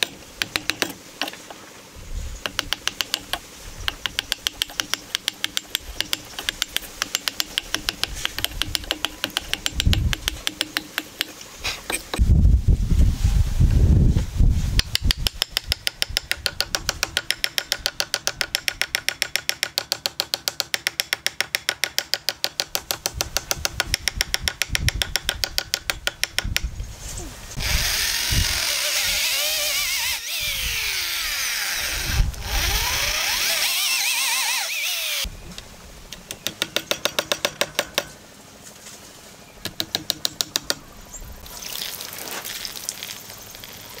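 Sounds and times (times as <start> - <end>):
hammer tapping on wood: 2.4 - 11.3, 14.8 - 26.7
electric drill boring into wood: 27.6 - 35.3.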